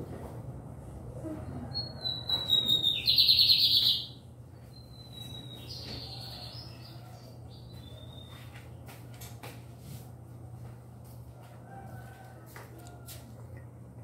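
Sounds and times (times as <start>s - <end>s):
songbird singing: 1.8s - 8.6s.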